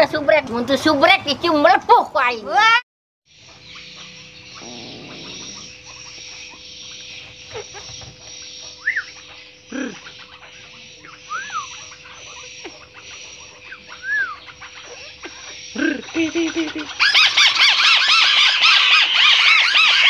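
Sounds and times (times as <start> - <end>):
steady hum and hiss: 0.0 - 19.5
bird calling: 3.3 - 20.0.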